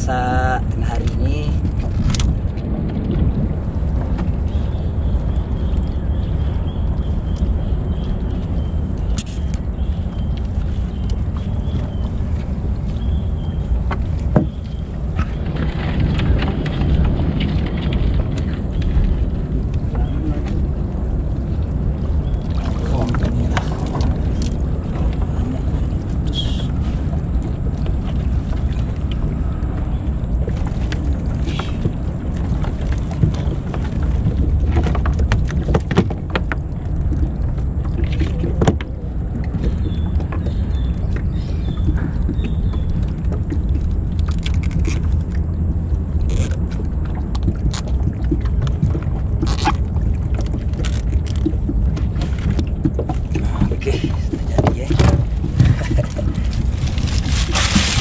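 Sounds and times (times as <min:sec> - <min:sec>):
steady low rumble: 0:00.0 - 0:58.0
clicks and knocks of crab net: 0:41.8 - 0:45.4, 0:46.3 - 0:58.0.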